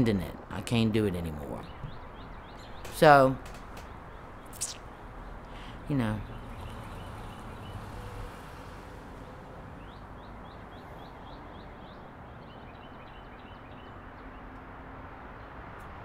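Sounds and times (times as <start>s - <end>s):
outdoor background rush: 0.0s - 16.0s
small bird chirping: 1.3s - 14.0s.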